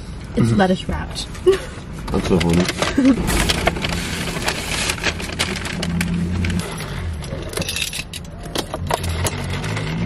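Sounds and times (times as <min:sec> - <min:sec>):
car interior hum: 0:02.1 - 0:09.5
food packaging crinkling: 0:02.5 - 0:06.6.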